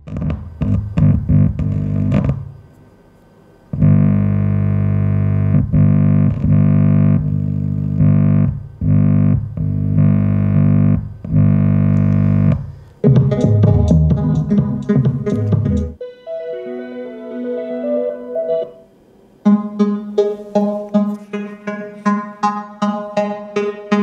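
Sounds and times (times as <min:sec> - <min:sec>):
long held chords: 0:00.0 - 0:02.6, 0:03.7 - 0:24.0
music through a loudspeaker: 0:13.0 - 0:18.8, 0:19.4 - 0:24.0.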